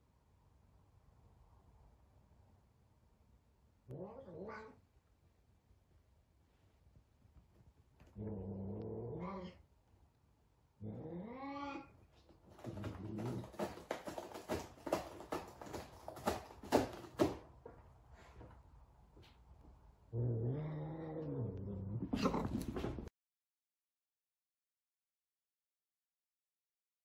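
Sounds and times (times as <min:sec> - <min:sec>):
cat meowing: 0:03.9 - 0:04.8, 0:09.0 - 0:09.6, 0:10.8 - 0:12.0
claws scratching cardboard: 0:12.4 - 0:17.4.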